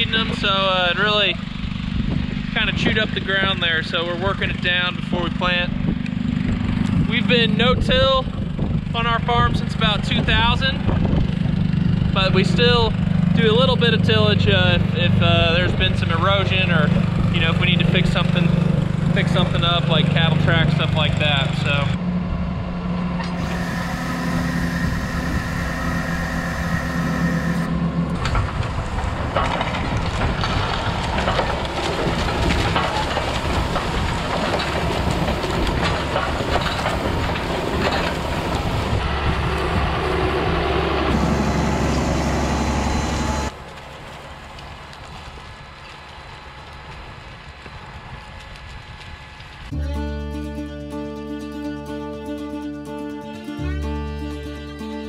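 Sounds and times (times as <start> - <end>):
tractor engine hum: 0.0 - 55.0
planter rattling and clicking: 23.2 - 39.7.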